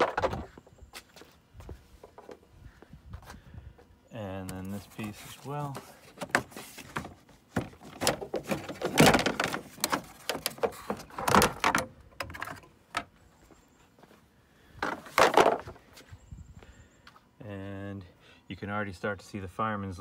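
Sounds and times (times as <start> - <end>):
plastic panel clattering on pavement: 0.0 - 0.6, 5.7 - 13.1, 14.8 - 15.8.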